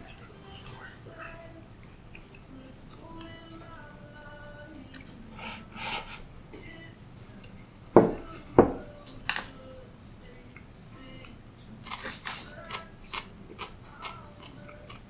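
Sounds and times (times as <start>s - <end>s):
bowl knocking on table: 8.0s - 8.9s.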